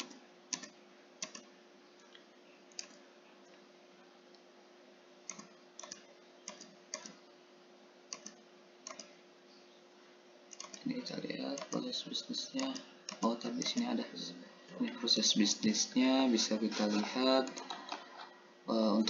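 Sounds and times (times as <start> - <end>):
computer keyboard keys clicking: 0.0 - 1.5, 2.7 - 3.0, 5.3 - 7.2, 8.1 - 9.1, 10.5 - 10.9, 11.5 - 11.9, 12.6 - 13.9
faint steady hum: 0.0 - 19.0.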